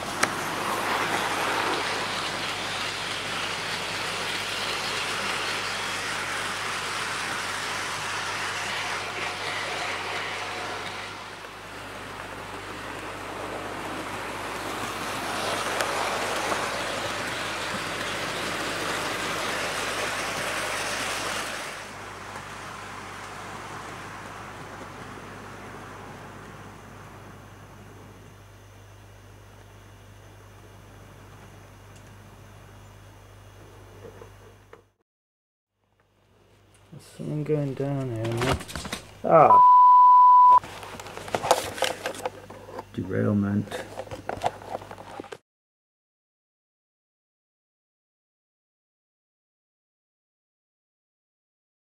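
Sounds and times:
model train whirring on track: 0.0s - 22.6s.

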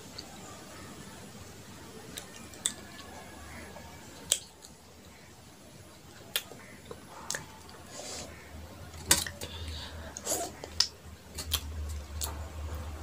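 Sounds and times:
eating clicks and smacks: 2.1s - 3.2s, 4.2s - 5.1s, 6.2s - 7.8s, 8.9s - 12.4s.

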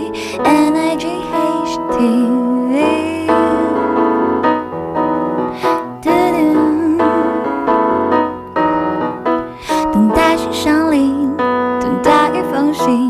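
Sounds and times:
piano playing slow chords: 0.0s - 13.0s.

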